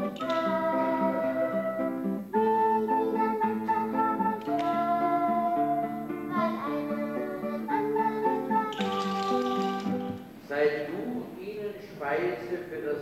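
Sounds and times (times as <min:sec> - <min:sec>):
held melody line: 0:00.0 - 0:10.3
guitar accompaniment: 0:00.0 - 0:11.2.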